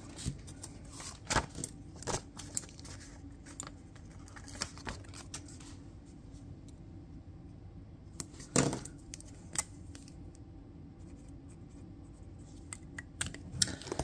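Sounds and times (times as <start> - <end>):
paper rustling: 0.0 - 5.8.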